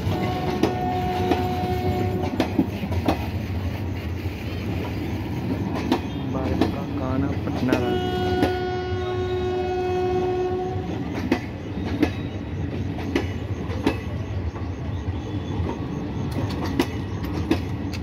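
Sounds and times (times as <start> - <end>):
train horn: 0.0 - 2.6, 7.6 - 11.2
train wheels clacking over rail joints: 0.0 - 9.0, 9.8 - 18.0
train coaches rumbling past: 0.0 - 18.0.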